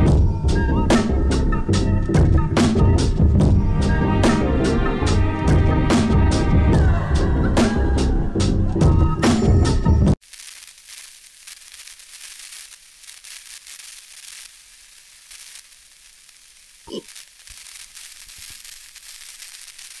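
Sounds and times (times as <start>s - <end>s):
crackling static hiss: 10.1s - 20.0s.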